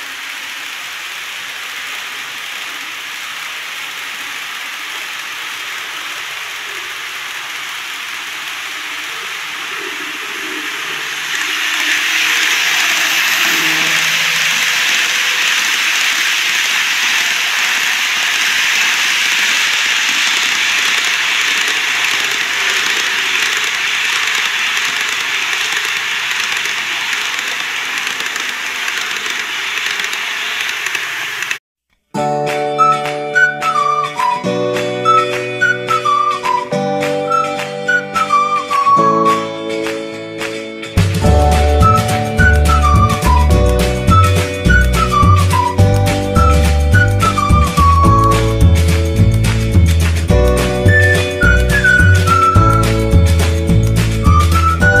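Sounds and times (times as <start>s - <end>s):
model trains running on track: 0.0s - 31.6s, 41.0s - 55.0s.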